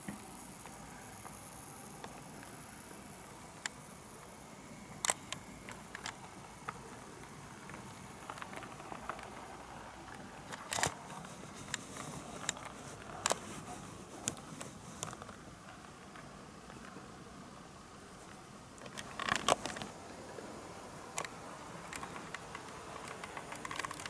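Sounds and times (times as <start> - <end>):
wheels clicking over rail joints: 18.8 - 24.0.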